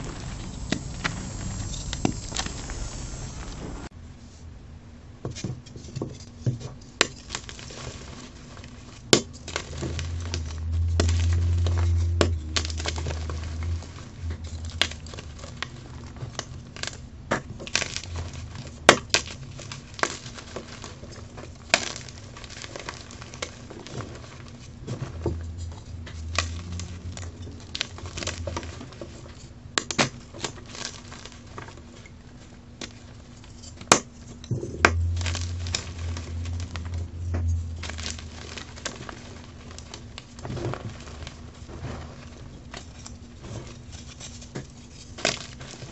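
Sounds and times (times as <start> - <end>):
chalk crunching and crackling: 0.0 - 3.9, 6.4 - 45.9
low rumble: 0.0 - 3.9, 9.6 - 16.6, 23.3 - 29.5, 34.2 - 42.5.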